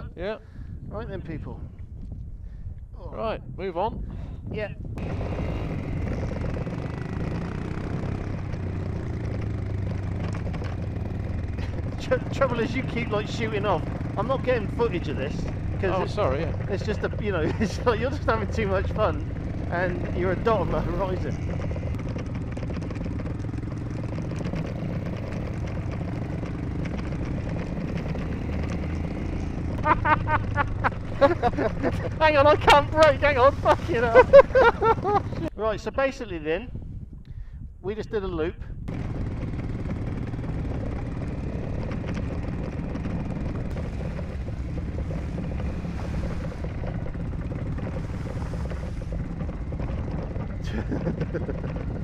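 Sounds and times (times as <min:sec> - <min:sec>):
wind noise on microphone: 0:00.0 - 0:05.9, 0:33.7 - 0:38.9
motorcycle engine running: 0:04.8 - 0:35.6, 0:38.8 - 0:52.0.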